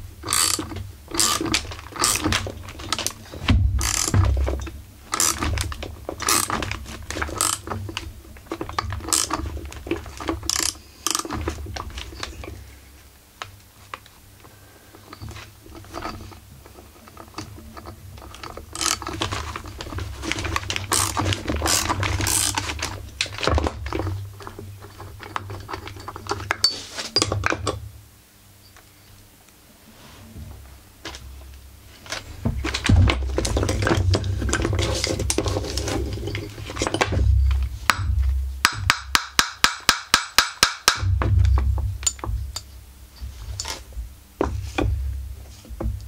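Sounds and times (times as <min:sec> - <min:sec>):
metal hand tools clicking and clattering: 0:00.2 - 0:03.2, 0:03.8 - 0:12.5, 0:17.0 - 0:27.8.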